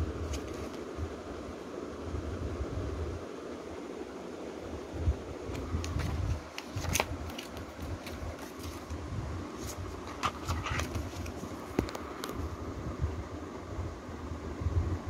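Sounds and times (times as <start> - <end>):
paper rustling: 0.2 - 0.8, 5.5 - 12.4.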